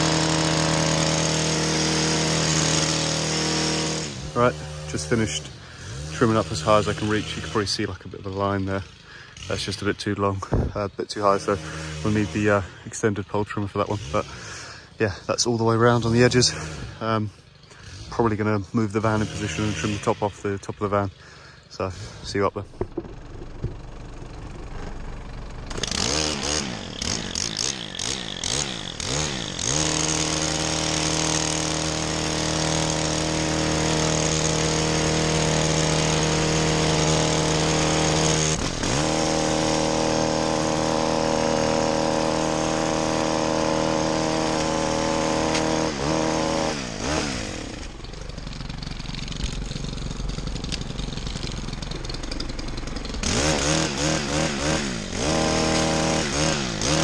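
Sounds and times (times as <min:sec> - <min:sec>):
hedge trimmer engine revving: 0:00.0 - 0:57.0.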